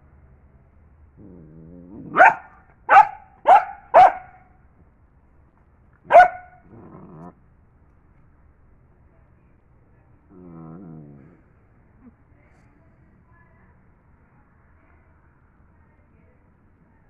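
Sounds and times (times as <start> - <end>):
dog growling: 1.2 - 2.4, 6.6 - 7.4, 10.3 - 11.6
dog barking sharply: 2.1 - 4.4, 6.1 - 6.6.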